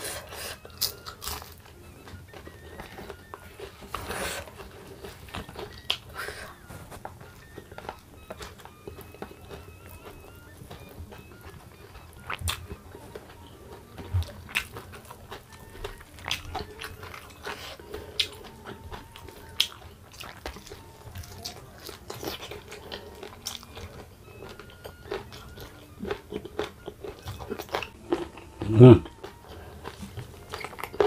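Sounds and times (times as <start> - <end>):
mouth smacks: 0.0 - 31.0
person chewing crunchy food: 0.0 - 31.0.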